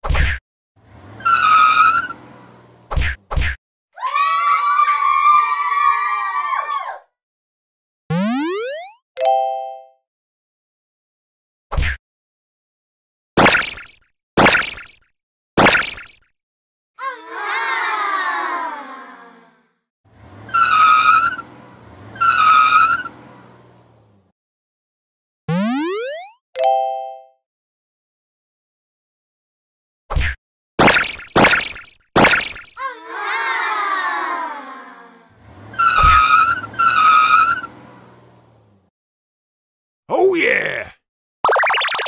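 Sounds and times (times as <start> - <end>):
tire squeal skids: 0.8 - 3.2, 20.1 - 23.8, 35.4 - 38.4
low engine rumble: 20.1 - 24.3
wavering pitched sound falling: 41.5 - 42.0.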